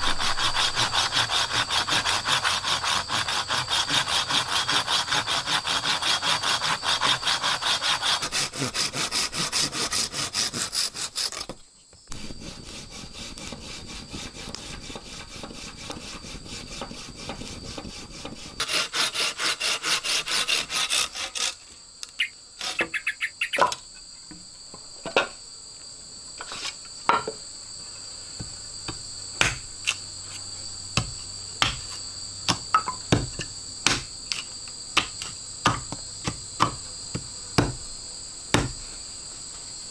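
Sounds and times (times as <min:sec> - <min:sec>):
hand saw cutting wood: 0:00.0 - 0:21.7, 0:22.6 - 0:23.0
insects droning: 0:00.0 - 0:39.9
sharp knocks on wood: 0:35.0 - 0:37.8, 0:38.5 - 0:38.8.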